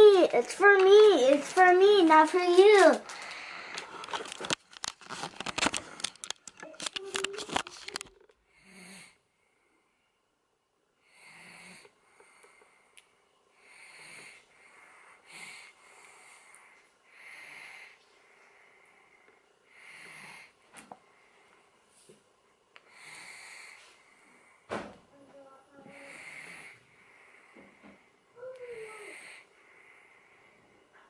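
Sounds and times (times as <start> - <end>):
person wheezy breathing: 25.9 - 30.6.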